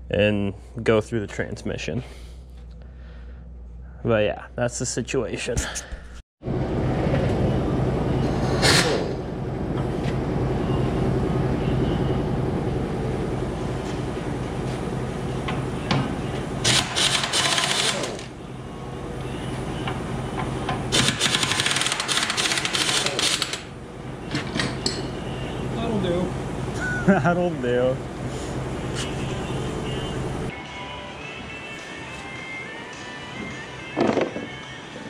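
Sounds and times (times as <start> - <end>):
steady low hum: 0.0 - 21.7, 23.1 - 33.7
pneumatic impact wrench hammering: 16.6 - 18.3, 20.9 - 23.7.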